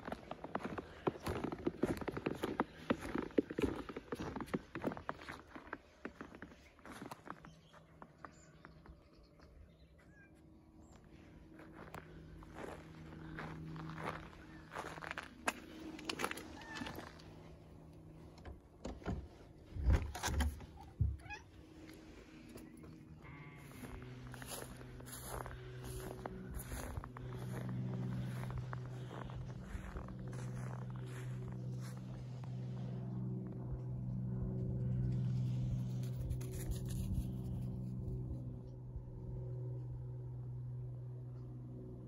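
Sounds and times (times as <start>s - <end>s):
low mechanical hum: 0.0s - 42.0s
cat meowing: 16.6s - 17.0s, 21.1s - 21.5s.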